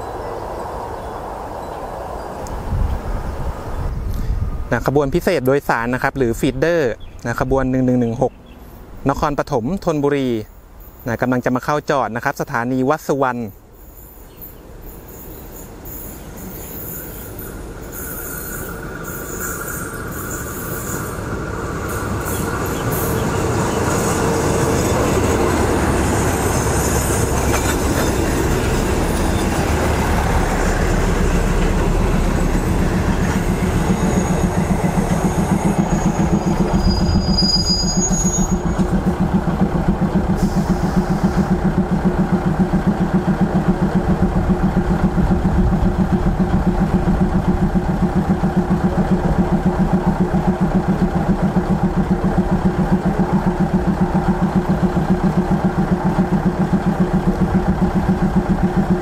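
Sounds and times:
diesel train pulling in: 0.0s - 59.0s
train brakes squealing: 13.0s - 31.0s, 32.1s - 39.2s, 40.3s - 41.6s
diesel engine throbbing: 21.1s - 59.0s.

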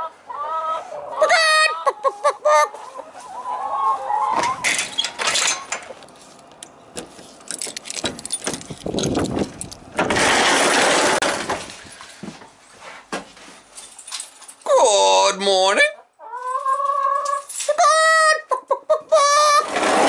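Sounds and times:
hens clucking: 0.0s - 4.7s, 16.0s - 20.0s
keys jangling: 7.4s - 9.9s, 13.8s - 14.7s.

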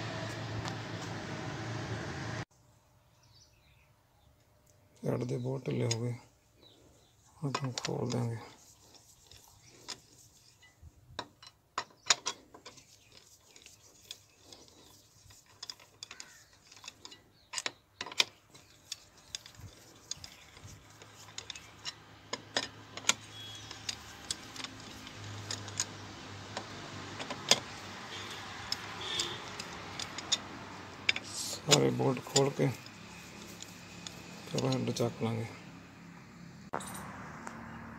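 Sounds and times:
ratchet wrench clicking: 13.6s - 34.8s.

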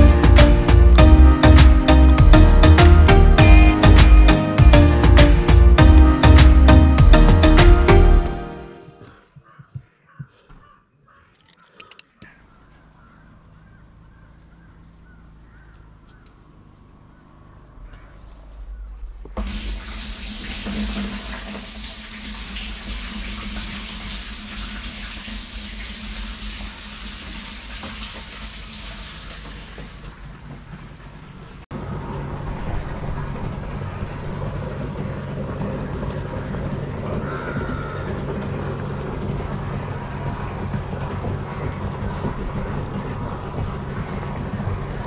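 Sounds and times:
steady low rumble: 13.5s - 24.7s, 30.9s - 45.0s
water pouring into tank: 19.4s - 30.5s.

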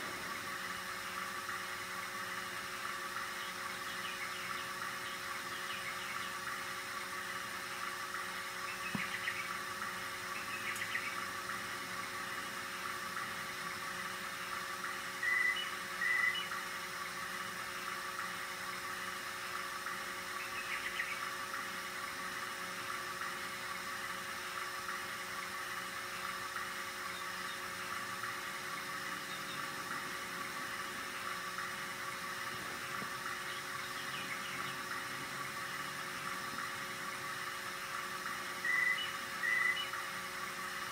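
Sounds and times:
cassette deck mechanical whir: 0.0s - 40.9s
steady hum: 0.0s - 40.9s.

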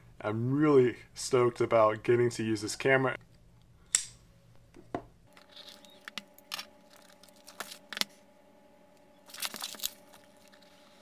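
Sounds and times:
plastic wrap crinkling: 5.3s - 8.2s, 9.2s - 11.0s
plastic wrap crackling: 9.2s - 11.0s.

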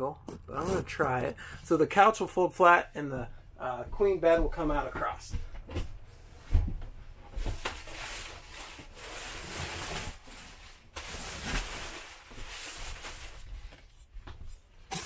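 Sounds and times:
plastic crinkling: 7.6s - 14.0s.

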